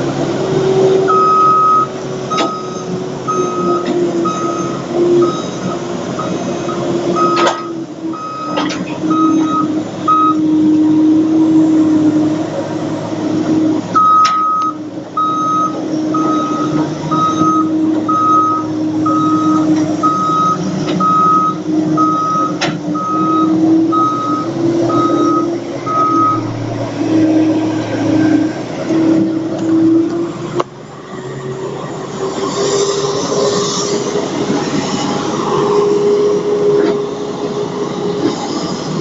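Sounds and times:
diesel engine running: 0.0s - 39.0s
reversing alarm beeping: 0.9s - 10.9s, 13.9s - 28.5s.

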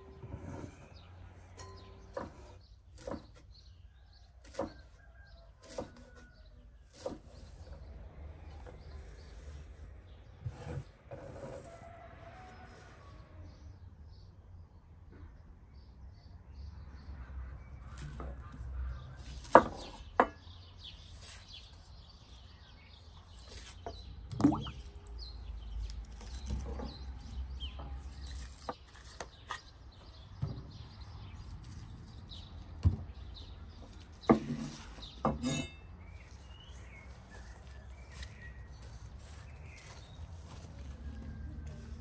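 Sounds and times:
birds chirping: 17.8s - 40.6s.

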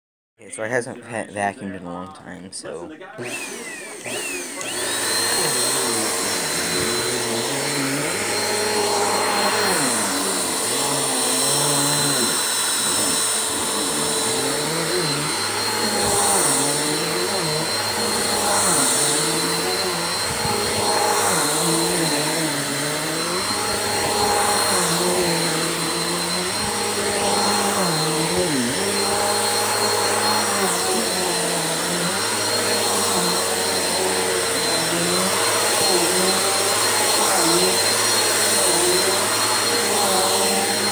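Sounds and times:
vacuum cleaner running: 3.1s - 40.9s.

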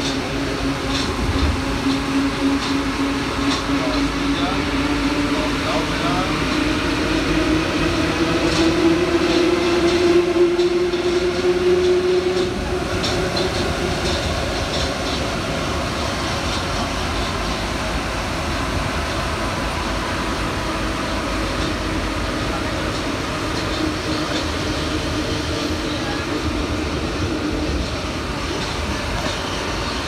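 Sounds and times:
train running noise: 0.0s - 30.0s.

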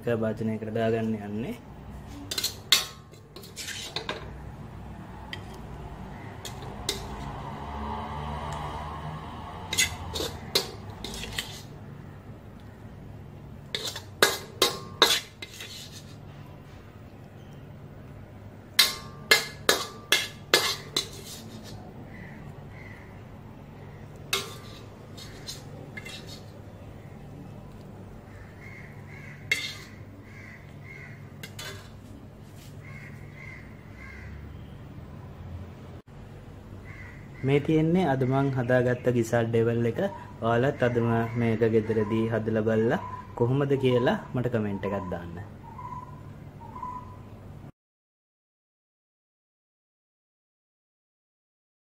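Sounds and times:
metal spoon clinking on wok: 2.3s - 4.2s, 9.7s - 11.6s, 13.7s - 15.6s, 18.8s - 21.4s, 24.4s - 26.4s
crows cawing: 6.0s - 6.9s, 22.0s - 24.5s, 28.2s - 31.4s, 32.8s - 34.5s, 36.8s - 38.5s, 40.7s - 42.2s.

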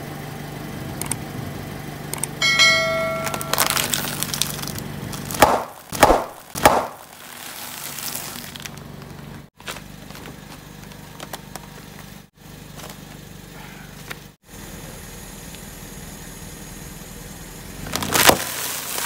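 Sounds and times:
car engine idling: 0.0s - 18.9s
tyre crushing chip bag: 3.3s - 12.2s, 17.9s - 19.0s
bag crackling: 3.4s - 11.3s.

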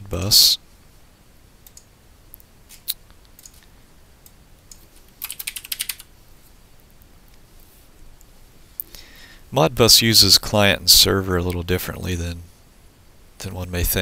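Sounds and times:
keyboard typing: 4.7s - 6.1s.

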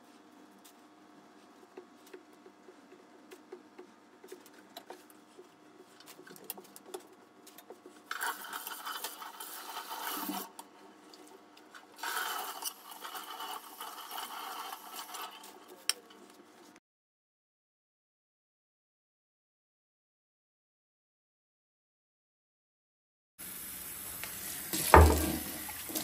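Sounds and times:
tap water splashing on cloth: 24.8s - 26.0s.

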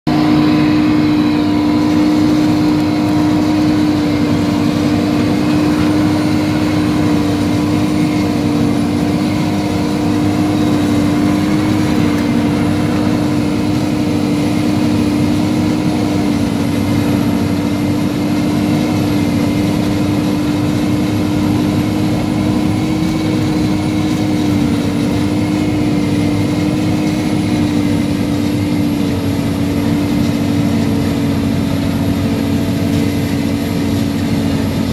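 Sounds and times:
forage harvester engine drone: 0.0s - 34.9s.

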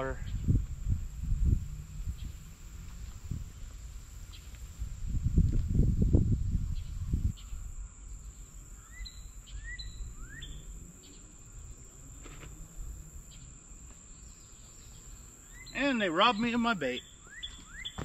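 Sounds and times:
wind rumbling on microphone: 0.0s - 13.6s
high insect drone: 0.0s - 18.0s
bird chirping: 6.7s - 11.8s, 13.2s - 18.0s.

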